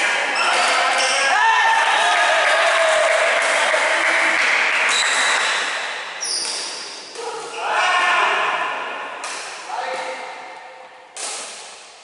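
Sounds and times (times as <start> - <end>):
shoe squeak on wooden court: 4.9 - 6.8.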